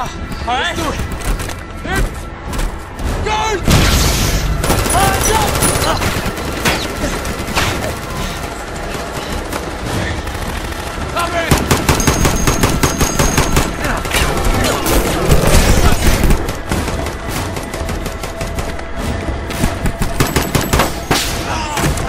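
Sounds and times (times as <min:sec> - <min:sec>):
automatic gunfire: 0:04.6 - 0:14.7.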